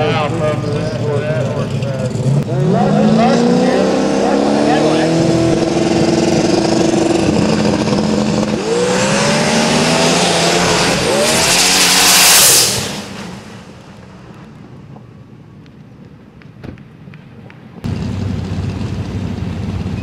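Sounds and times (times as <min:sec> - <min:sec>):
car engine accelerating hard: 0:00.0 - 0:14.4, 0:17.9 - 0:20.0.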